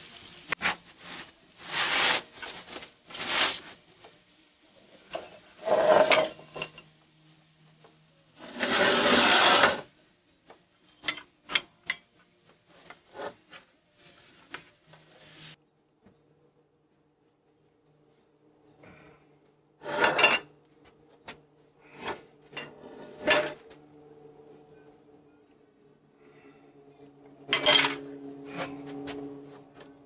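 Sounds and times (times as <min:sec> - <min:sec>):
pan scraping oven floor: 0:05.2 - 0:06.8, 0:08.4 - 0:09.9, 0:19.8 - 0:20.5, 0:21.8 - 0:23.7, 0:27.5 - 0:28.8.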